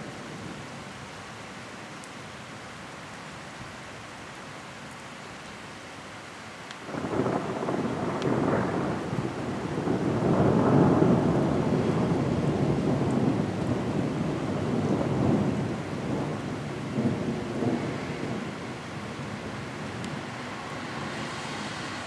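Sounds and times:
rain falling: 0:00.0 - 0:22.0
rolling thunder: 0:06.9 - 0:22.0.

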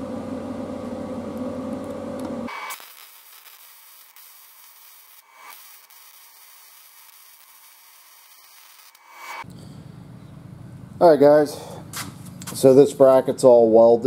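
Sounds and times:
welder arc hissing crackle: 0:02.5 - 0:09.4.

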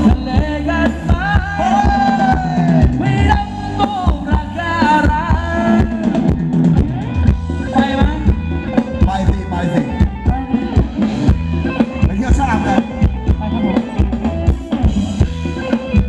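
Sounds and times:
drum kit steady beat: 0:00.0 - 0:16.0
heavy bass line: 0:00.0 - 0:16.0.

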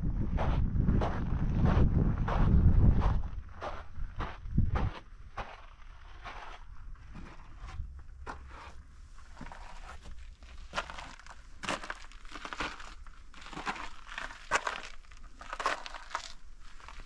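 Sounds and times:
footsteps scuffing on rough ground: 0:00.3 - 0:17.0.

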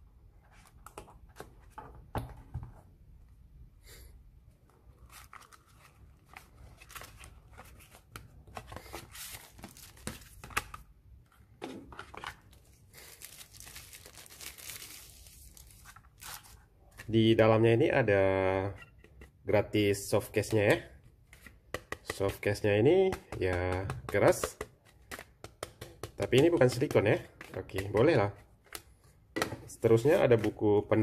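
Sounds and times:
plastic bag crinkling: 0:12.6 - 0:16.6.

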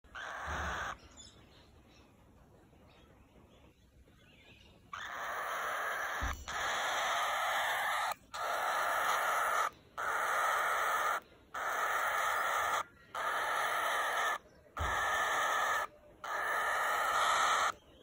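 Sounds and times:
cockatiel chick raspy calls: 0:00.1 - 0:01.0, 0:04.9 - 0:17.9.

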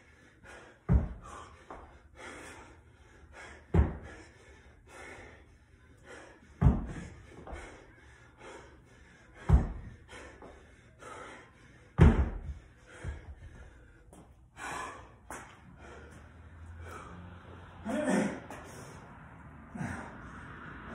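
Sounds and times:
hard rapid breathing: 0:00.0 - 0:20.9
dumbbell thudding on rubber mat: 0:00.9 - 0:01.2, 0:03.7 - 0:04.1, 0:06.6 - 0:07.1, 0:09.4 - 0:09.9, 0:12.0 - 0:13.2.

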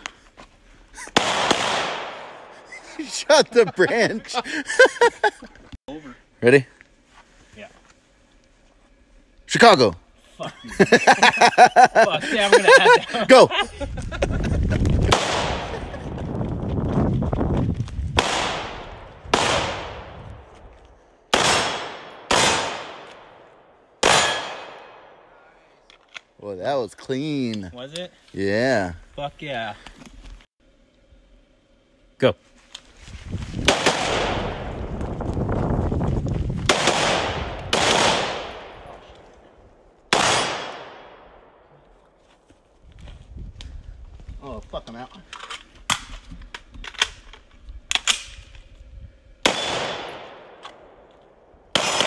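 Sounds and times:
gunshots echoing through trees: 0:01.1 - 0:02.7, 0:15.1 - 0:16.0, 0:18.2 - 0:20.5, 0:21.2 - 0:25.4, 0:33.7 - 0:34.8, 0:36.7 - 0:39.2, 0:40.1 - 0:41.8, 0:49.4 - 0:52.0
pistol shot: 0:01.2 - 0:02.4, 0:15.1 - 0:15.7, 0:18.2 - 0:20.1, 0:21.3 - 0:23.4, 0:24.0 - 0:25.2, 0:33.7 - 0:34.7, 0:36.7 - 0:38.8, 0:40.1 - 0:41.3, 0:49.4 - 0:50.7, 0:51.7 - 0:52.0
rifle shot: 0:01.2 - 0:02.6, 0:15.1 - 0:15.8, 0:18.2 - 0:20.2, 0:21.3 - 0:23.4, 0:24.0 - 0:25.2, 0:33.7 - 0:34.8, 0:36.7 - 0:39.0, 0:40.1 - 0:41.6, 0:49.4 - 0:51.0, 0:51.7 - 0:52.0.

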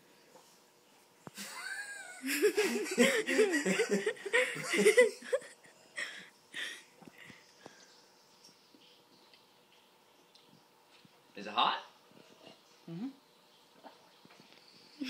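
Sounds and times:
person laughing high-pitched: 0:01.4 - 0:05.5.

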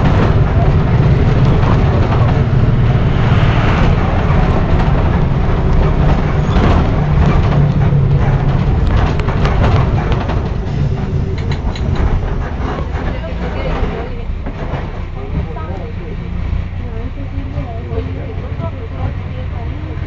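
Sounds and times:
bus diesel engine hum: 0:00.0 - 0:20.0
road noise: 0:00.0 - 0:20.0
body rattles: 0:04.4 - 0:15.6.

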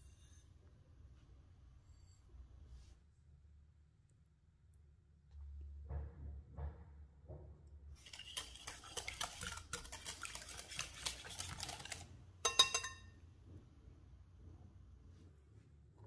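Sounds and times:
utensil scraping a mixing bowl: 0:08.0 - 0:12.9
ringing clink of metal or glass: 0:12.4 - 0:13.2.

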